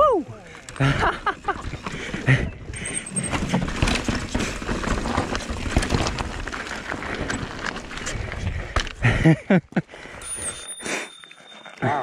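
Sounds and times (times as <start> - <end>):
bike rattling: 0.0 - 12.0
bike tyres crunching on gravel: 0.7 - 9.3.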